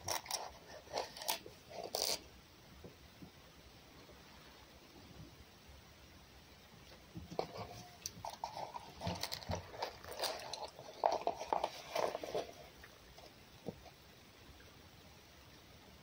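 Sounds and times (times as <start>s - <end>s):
fox crunching and chewing: 0.0s - 2.3s, 7.2s - 14.0s.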